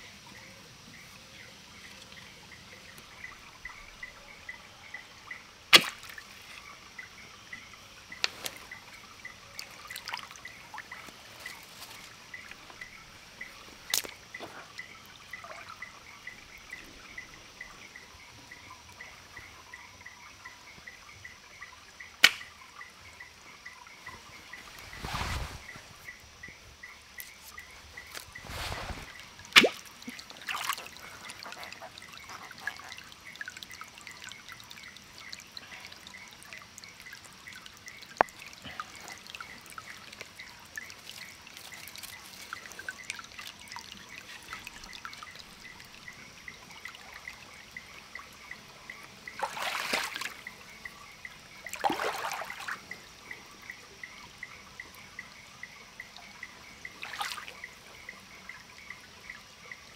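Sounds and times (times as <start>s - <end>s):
water splashes: 5.7s - 6.9s, 27.3s - 53.2s, 56.2s - 58.1s
water dripping and pouring: 27.5s - 50.5s, 51.5s - 53.1s, 56.7s - 58.0s.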